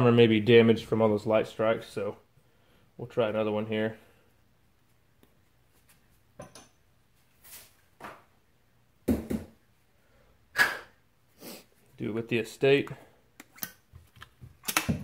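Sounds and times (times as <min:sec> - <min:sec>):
clicks of small parts: 0:13.4 - 0:15.0.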